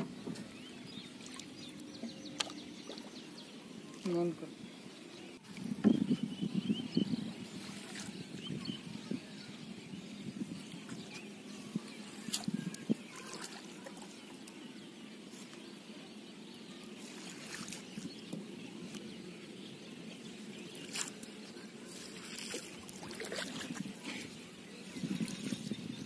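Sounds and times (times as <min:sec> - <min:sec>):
water lapping around boat: 0:00.0 - 0:15.6, 0:16.6 - 0:26.0
clicks and taps of net and boat: 0:02.0 - 0:02.6.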